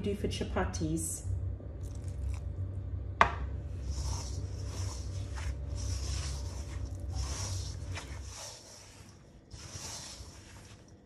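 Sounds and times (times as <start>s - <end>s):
steady low hum: 0.0s - 11.0s
hands squishing dough: 3.8s - 11.0s.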